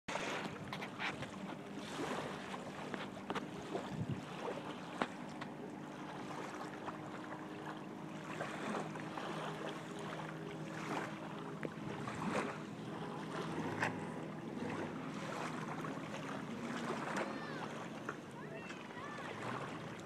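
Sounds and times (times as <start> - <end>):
distant engine hum: 0.1 - 20.0
wind noise on microphone: 3.8 - 4.3.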